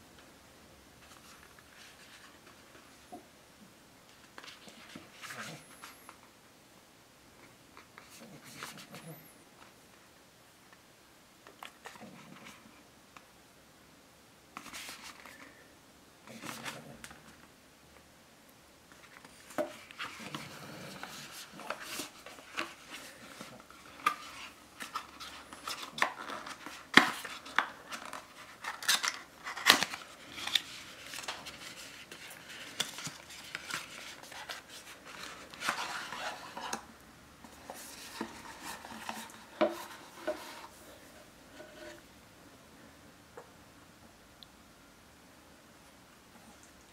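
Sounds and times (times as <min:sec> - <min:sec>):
cardboard rustling and scraping: 0:19.0 - 0:42.1.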